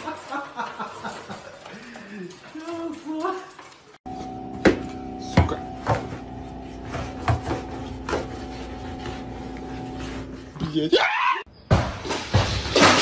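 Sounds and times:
steady hum: 4.1s - 10.6s.

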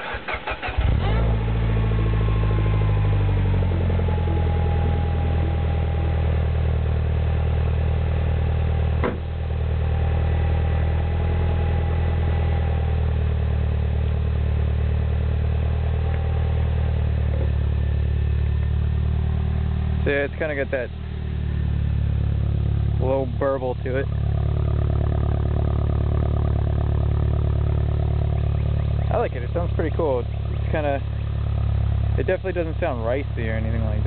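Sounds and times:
car engine idling: 0.0s - 34.0s
thud: 9.0s - 9.4s.

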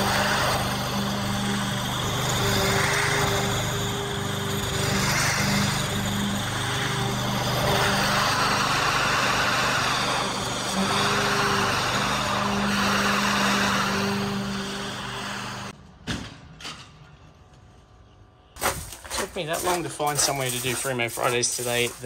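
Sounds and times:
lawn mower running: 0.0s - 15.7s.

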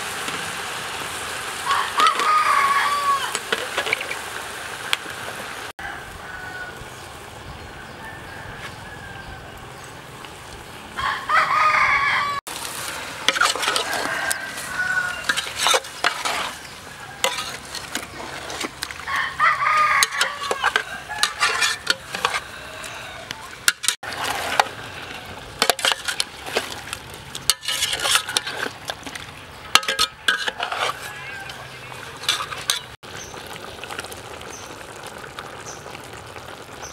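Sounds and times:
rooster crowing: 1.6s - 3.4s, 5.8s - 7.0s, 7.7s - 9.7s, 11.0s - 12.4s, 13.5s - 15.4s, 16.9s - 17.5s, 19.0s - 23.5s, 30.7s - 31.8s
metal spoon scraping metal pot: 13.2s - 19.1s, 19.7s - 23.0s, 23.6s - 33.0s.

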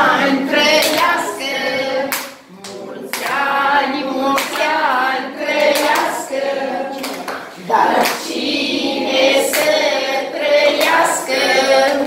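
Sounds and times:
children singing a birthday song: 0.0s - 12.0s
hand clapping: 0.7s - 1.3s, 2.1s - 3.6s, 4.3s - 4.9s, 5.5s - 8.4s, 9.4s - 9.9s, 10.7s - 12.0s.

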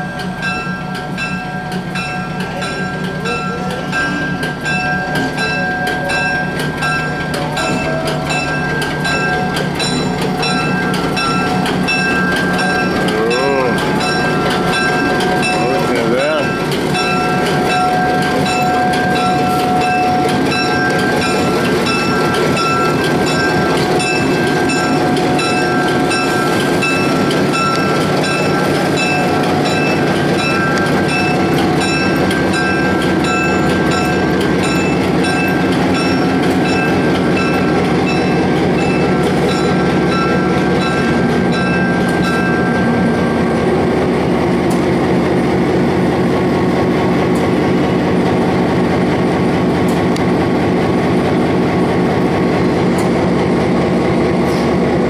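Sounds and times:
repeating bell ringing: 0.0s - 43.5s
diesel locomotive rumble: 0.0s - 55.0s.

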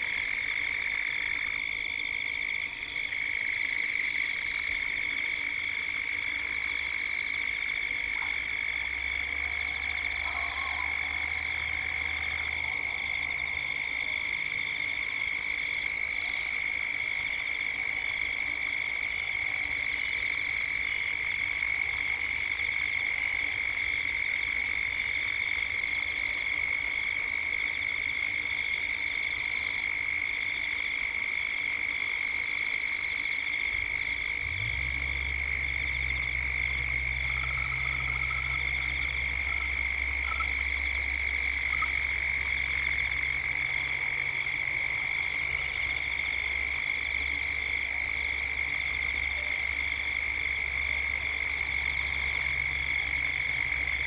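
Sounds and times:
cicadas droning: 0.0s - 54.0s
low steady hum: 0.0s - 54.0s.

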